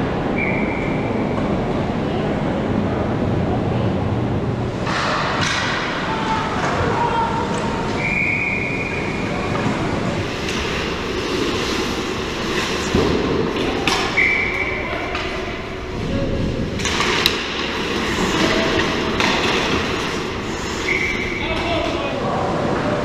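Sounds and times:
skate blades scraping ice: 10.2s - 14.2s, 16.8s - 21.8s
sticks and puck knocking: 16.8s - 20.2s.

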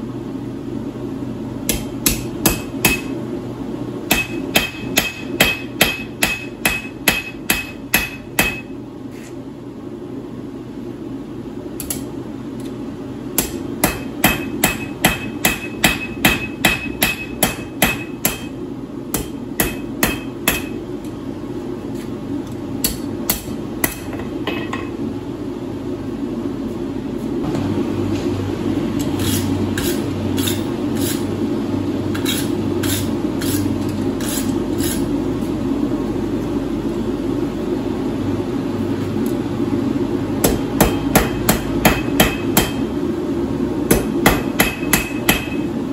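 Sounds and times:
hammer striking steel on anvil: 1.7s - 3.2s, 4.1s - 8.8s, 13.4s - 20.8s, 22.8s - 25.0s, 40.4s - 42.9s, 43.9s - 45.7s.

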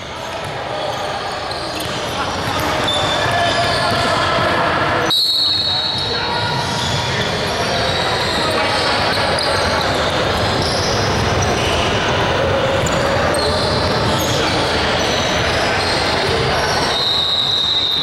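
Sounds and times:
sneakers squeaking on hardwood floor: 0.0s - 18.0s
basketballs bouncing: 1.5s - 4.9s.

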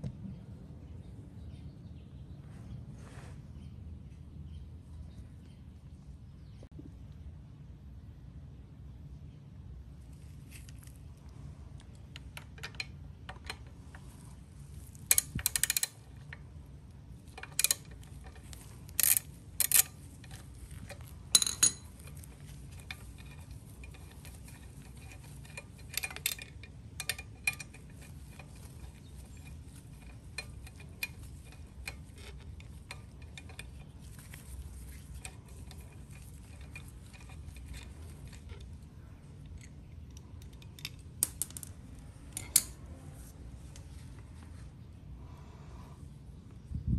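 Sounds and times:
low background hum: 0.0s - 46.9s
steel hardware clinking: 12.0s - 42.8s.

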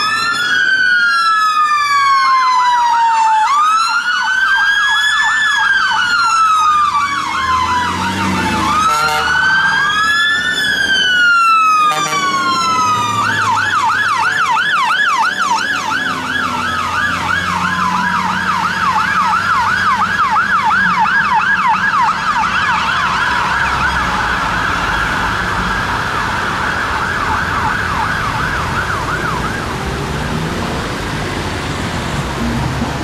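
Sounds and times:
siren yelping: 0.0s - 30.4s
siren wailing: 0.0s - 31.2s.

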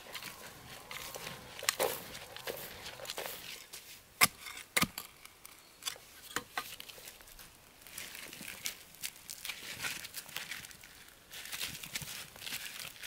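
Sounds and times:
scratchy rustle: 0.0s - 4.0s.

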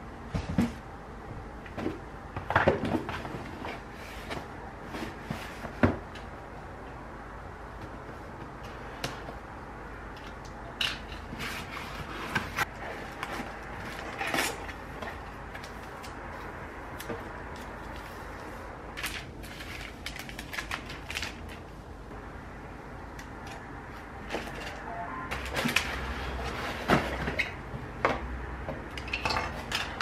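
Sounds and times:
cardboard and plastic rustling: 1.7s - 6.3s, 11.0s - 21.8s, 24.2s - 27.6s.

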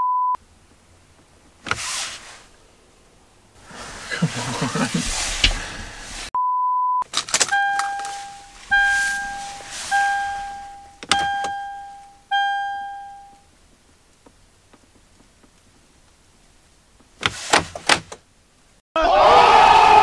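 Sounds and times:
censor bleep: 0.0s - 0.4s, 6.4s - 13.4s
bell-like dings: 7.6s - 13.4s.

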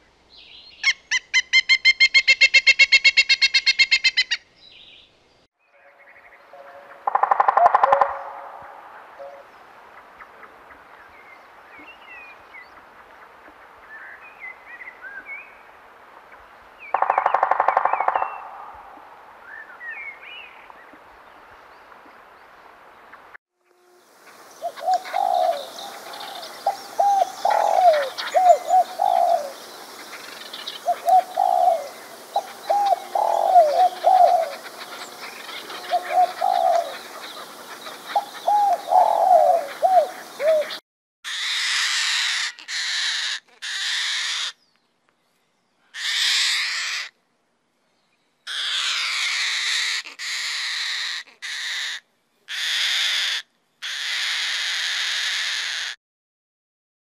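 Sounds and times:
faint outdoor ambience: 0.0s - 56.0s
dove cooing: 6.6s - 8.5s, 24.6s - 40.8s
cockatoo screeching: 41.3s - 44.6s, 46.0s - 47.1s, 48.5s - 56.0s.

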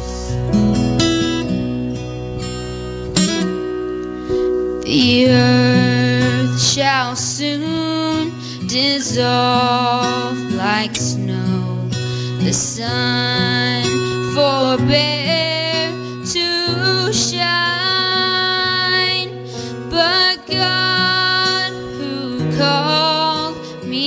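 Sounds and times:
instrumental accompaniment: 0.0s - 8.6s
woman singing into microphone: 4.8s - 24.0s.

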